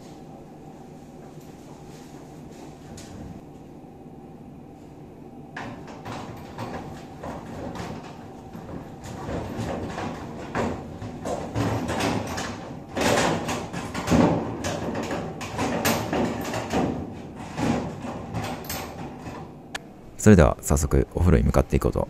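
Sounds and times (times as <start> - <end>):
knocks against a metal locker: 8.7 - 19.4.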